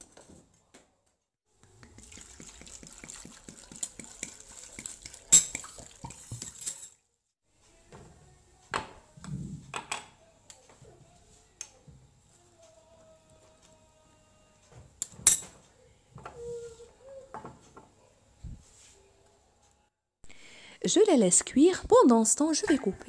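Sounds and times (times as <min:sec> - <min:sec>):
water splashing into saucepan: 0:01.6 - 0:06.9.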